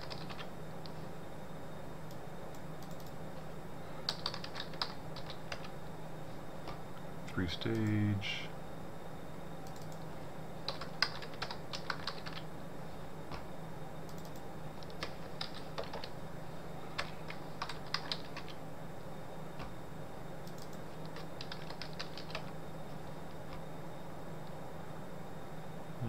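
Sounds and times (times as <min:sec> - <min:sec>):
computer keyboard typing: 0:00.0 - 0:00.5, 0:02.5 - 0:03.2, 0:04.0 - 0:05.8, 0:09.6 - 0:10.0, 0:10.7 - 0:12.5, 0:14.1 - 0:16.2, 0:17.0 - 0:18.6, 0:20.4 - 0:22.5
steady low hum: 0:00.0 - 0:26.0.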